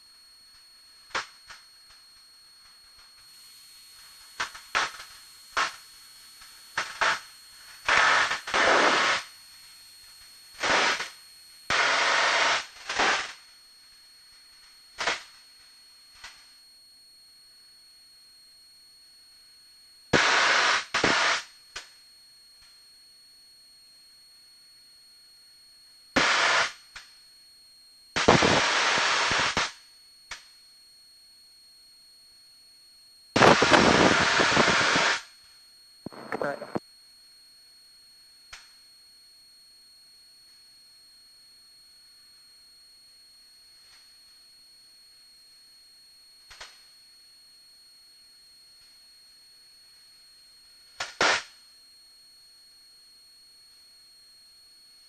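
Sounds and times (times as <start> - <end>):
faint steady high whine: 0.0 - 55.0
static hiss bursts on headset: 3.1 - 13.5, 20.1 - 21.5, 28.2 - 29.7, 33.4 - 35.3, 36.0 - 36.8, 51.0 - 51.4.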